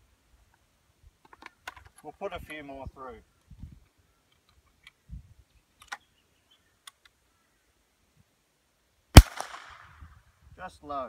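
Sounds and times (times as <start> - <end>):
rifle metallic clicks: 9.2 - 9.8
rifle shot with echo: 9.2 - 10.0.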